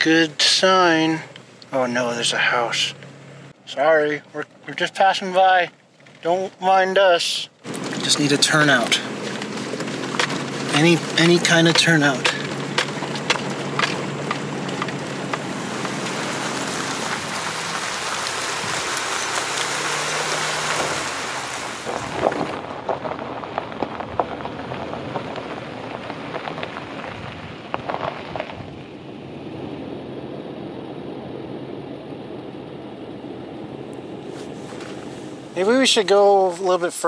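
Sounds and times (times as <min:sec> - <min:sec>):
tyre noise on gravel road: 0:00.0 - 0:37.0
stones popping under tyres: 0:07.6 - 0:29.2, 0:33.9 - 0:35.5.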